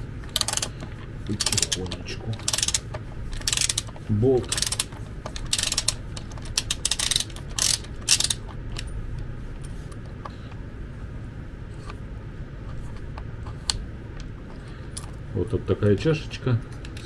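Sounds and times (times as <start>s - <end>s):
ratchet wrench clicking: 0.3s - 0.7s, 1.3s - 8.9s.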